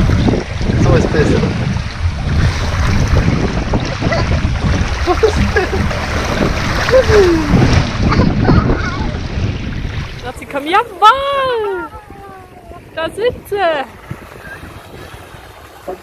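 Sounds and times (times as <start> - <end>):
water rushing down slide: 0.0 - 12.3
wind buffeting microphone: 0.0 - 16.0.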